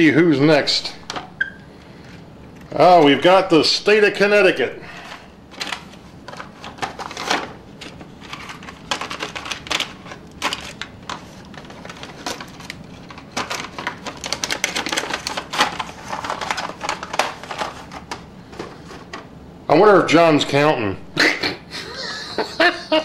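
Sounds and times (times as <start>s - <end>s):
cardboard boxes rustling: 5.0s - 19.2s.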